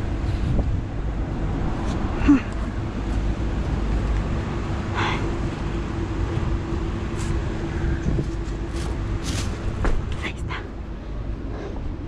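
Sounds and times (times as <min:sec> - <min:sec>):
low rumble: 0:00.0 - 0:12.0
scraping or rustling noises: 0:08.0 - 0:09.9.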